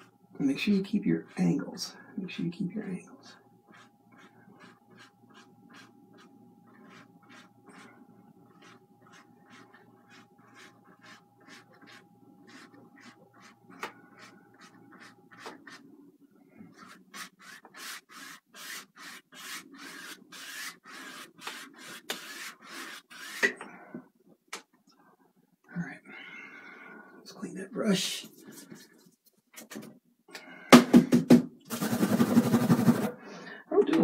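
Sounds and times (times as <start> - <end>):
paintbrush scrubbing: 3.7 - 15.9, 16.7 - 23.4, 31.7 - 33.2.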